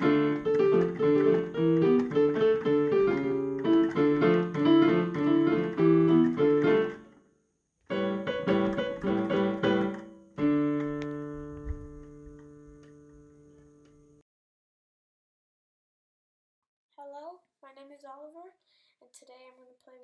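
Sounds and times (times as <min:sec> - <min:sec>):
digital piano playing: 0:00.0 - 0:07.2, 0:07.9 - 0:14.2.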